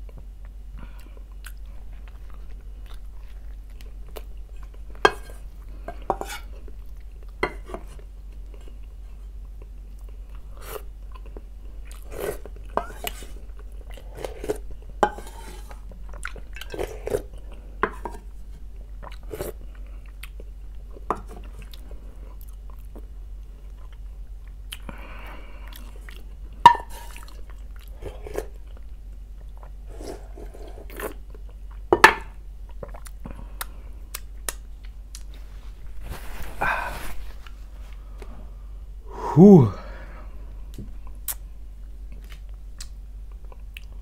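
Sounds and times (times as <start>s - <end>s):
chewing: 0.1s - 7.4s, 8.4s - 14.8s, 15.7s - 17.7s, 18.8s - 26.4s, 27.0s - 31.8s, 32.7s - 35.5s
person sipping soup: 39.1s - 39.9s.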